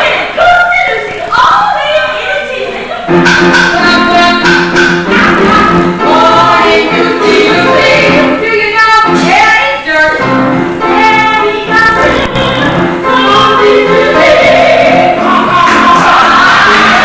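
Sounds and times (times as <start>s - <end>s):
instrumental accompaniment: 3.1s - 17.0s
woman singing: 3.8s - 17.0s.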